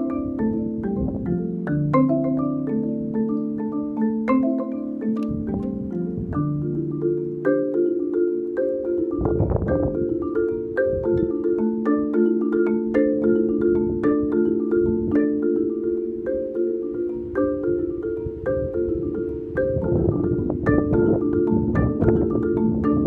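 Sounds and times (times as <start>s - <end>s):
wind rumbling on microphone: 0.0s - 1.8s, 5.2s - 7.1s, 9.0s - 11.9s, 13.4s - 15.4s, 17.1s - 23.0s
marimba played with mallets: 0.0s - 23.0s.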